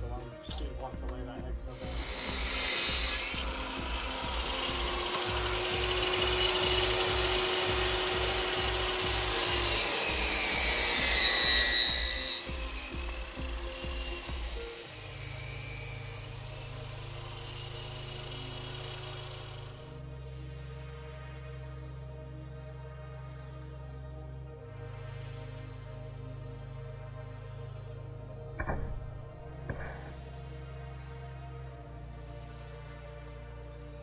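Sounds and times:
background music with steady beat: 0.0s - 34.0s
table saw ripping wood: 1.7s - 19.8s.

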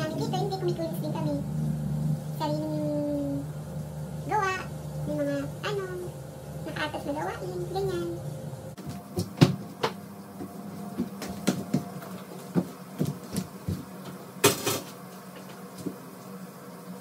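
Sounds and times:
steady low hum: 0.0s - 17.0s
knocks and clatter of cleaning: 8.8s - 16.0s.

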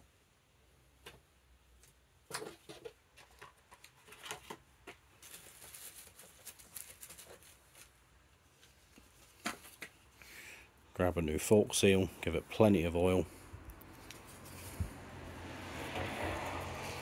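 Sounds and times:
soft rustling: 5.1s - 10.2s, 13.3s - 15.1s.

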